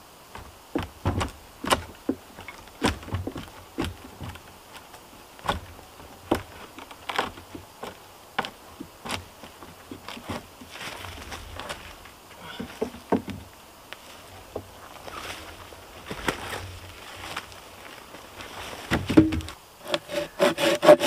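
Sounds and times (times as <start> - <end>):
wooden pole knocking on logs: 0.3 - 4.4, 5.4 - 6.5, 12.5 - 13.5, 18.9 - 20.0.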